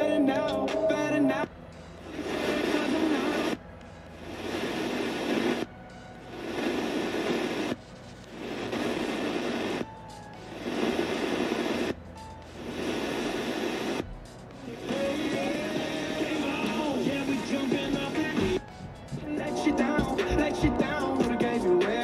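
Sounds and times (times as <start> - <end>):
music on radio: 0.0 - 22.0
radio bursts of station audio: 2.1 - 3.6, 4.2 - 5.7, 6.3 - 9.8, 14.7 - 22.0.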